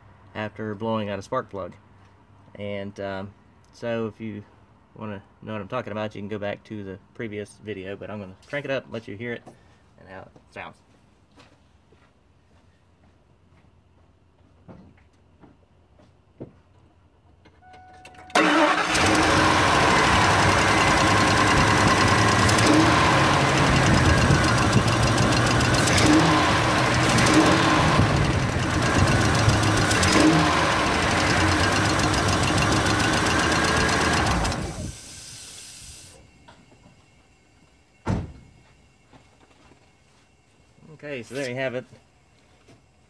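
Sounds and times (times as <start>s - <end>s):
engine starting and running: 18.0s - 36.8s.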